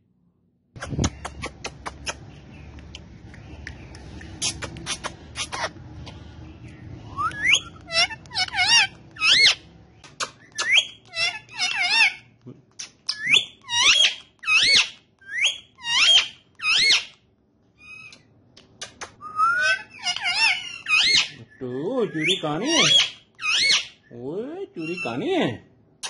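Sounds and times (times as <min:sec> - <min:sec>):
parrot shrill whistled calls: 0:07.1 - 0:09.6, 0:13.1 - 0:17.1, 0:19.2 - 0:24.1.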